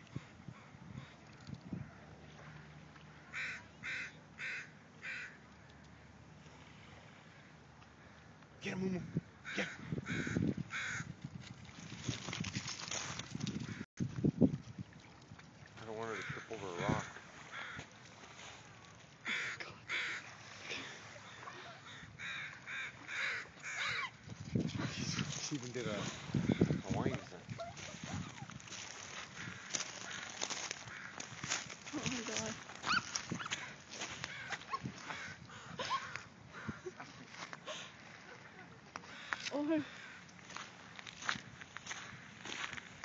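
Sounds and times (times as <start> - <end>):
crow cawing: 3.3 - 5.4, 9.4 - 11.1, 16.1 - 17.9, 19.2 - 20.3, 21.8 - 24.1, 29.1 - 31.4, 32.9 - 37.0, 39.1 - 40.6.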